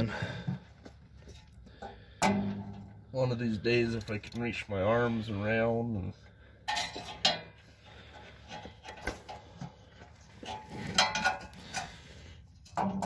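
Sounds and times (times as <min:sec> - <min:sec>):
sharp metal knocks: 0:02.2 - 0:03.0
metal clinks and scrapes: 0:06.6 - 0:13.0.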